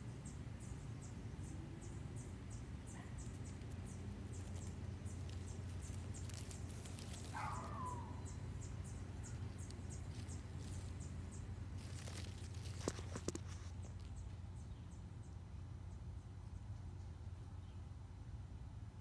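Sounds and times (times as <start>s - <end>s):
insects chirping: 0.0s - 16.6s
low steady hum: 0.0s - 19.0s
rustle and crackle: 0.6s - 15.3s.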